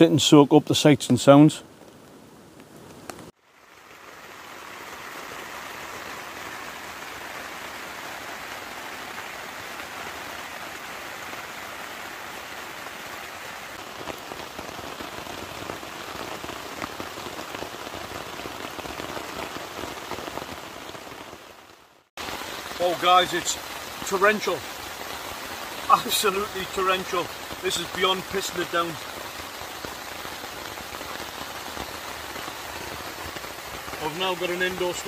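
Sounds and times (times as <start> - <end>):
heavy rain on tent fabric: 0.0 - 35.0
louder single raindrops: 0.6 - 35.0.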